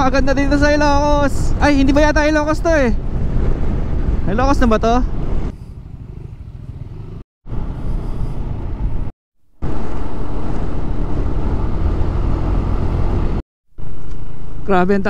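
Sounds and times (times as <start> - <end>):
motorcycle engine rumble: 3.0 - 14.8.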